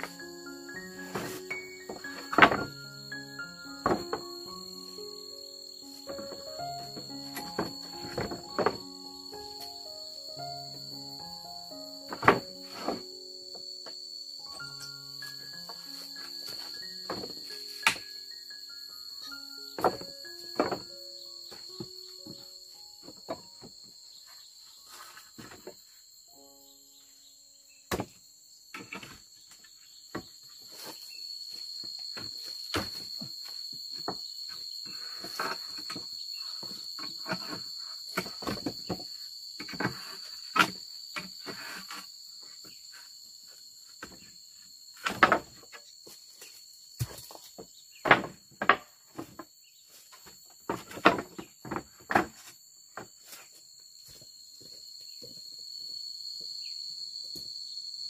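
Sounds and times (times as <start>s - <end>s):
insects droning: 0.0s - 58.0s
wooden offcuts knocking together: 7.4s - 8.8s, 12.1s - 13.0s, 17.1s - 18.1s, 19.8s - 20.8s, 50.7s - 52.5s.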